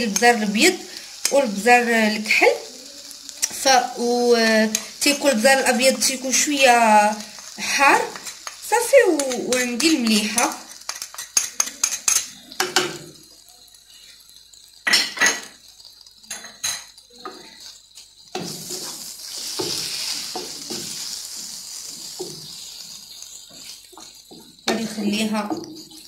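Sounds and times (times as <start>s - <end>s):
chicken sizzling in a frying pan: 0.0s - 26.0s
wooden spatula scraping a pan: 18.4s - 26.0s.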